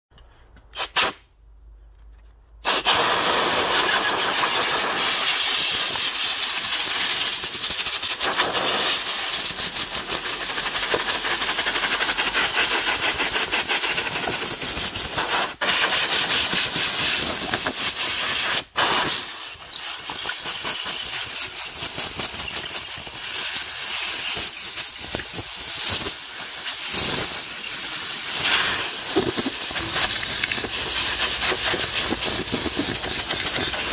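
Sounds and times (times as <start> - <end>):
compressed air hissing: 0.7 - 1.3, 2.6 - 33.9.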